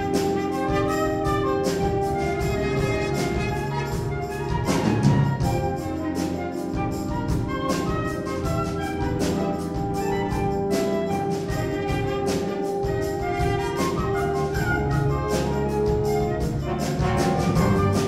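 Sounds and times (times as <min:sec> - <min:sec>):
brass and woodwind chords: 0:00.0 - 0:18.0.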